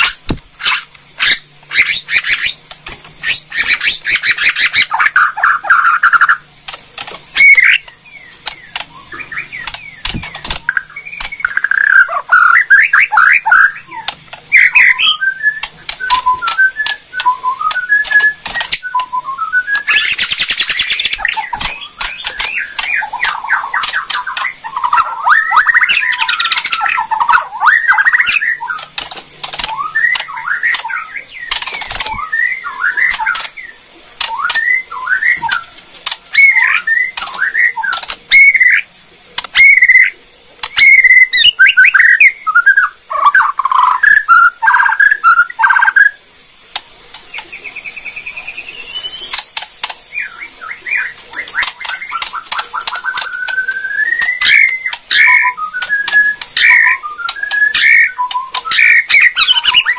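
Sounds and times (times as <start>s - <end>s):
bird clicking rattles: 6.6s - 8.9s, 9.6s - 12.0s, 15.6s - 19.1s, 19.7s - 24.6s, 28.8s - 30.9s, 31.5s - 32.1s, 37.2s - 38.3s, 51.2s - 56.6s
bird singing whistled phrases: 10.7s - 28.9s, 29.6s - 35.7s, 36.3s - 38.8s, 40.7s - 46.2s, 47.6s - 59.9s.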